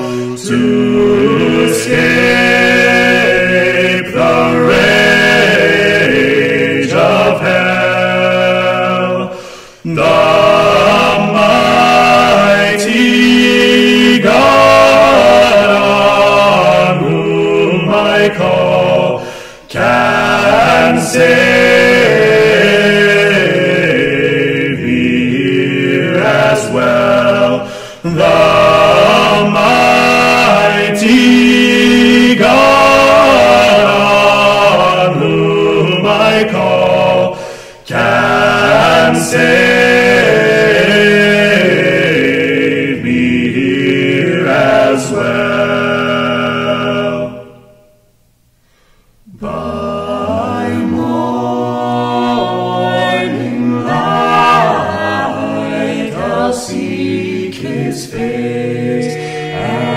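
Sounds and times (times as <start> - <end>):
choir singing a hymn: 0.0 - 47.9, 49.2 - 59.9.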